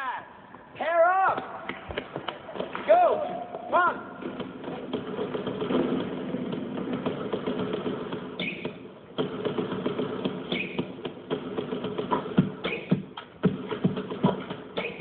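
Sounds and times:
basketballs bouncing on hardwood: 1.7s - 15.0s
sneaker squeaks: 8.2s - 9.0s, 10.3s - 11.1s, 12.1s - 13.2s, 14.2s - 15.0s.

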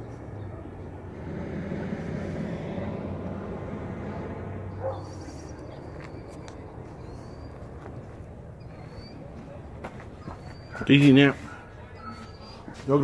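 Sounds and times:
propane burner blast: 0.7s - 5.8s.

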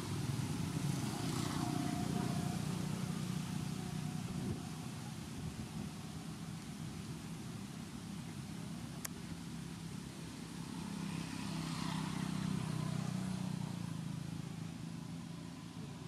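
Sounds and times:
vehicle engine passing: 0.0s - 4.9s, 10.5s - 16.0s.

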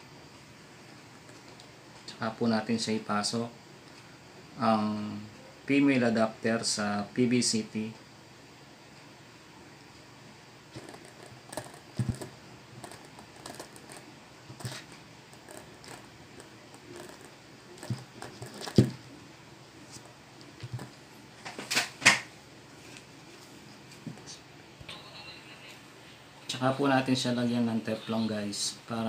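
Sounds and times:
plastic pipe fittings clicking and knocking: 10.8s - 14.8s, 16.7s - 19.0s.

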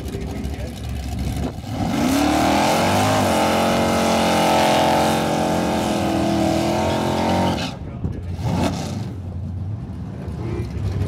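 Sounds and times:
car engine revving high: 1.6s - 9.2s.

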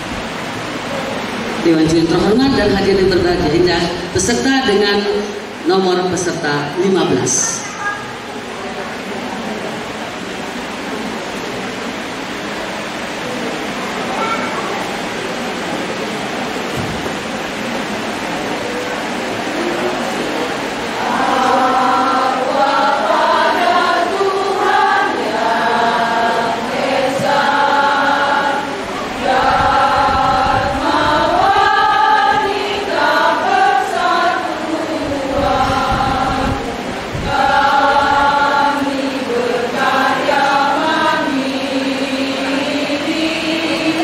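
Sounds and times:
women's choir singing: 15.4s - 44.0s.

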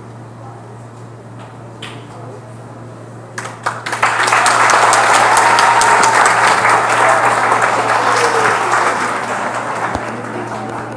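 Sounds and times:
audience applauding: 3.4s - 10.9s.

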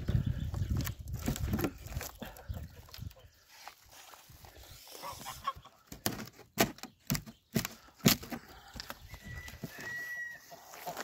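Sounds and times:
timber planks knocking and cracking: 5.9s - 8.8s.

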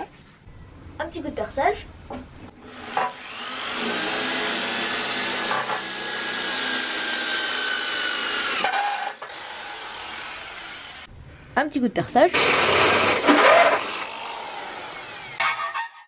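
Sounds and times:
electric drill whining: 2.7s - 11.1s, 12.4s - 15.4s.

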